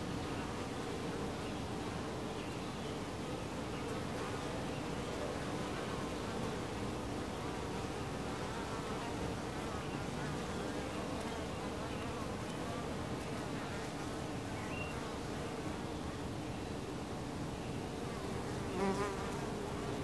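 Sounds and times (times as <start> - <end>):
honey bees buzzing: 17.8 - 20.0.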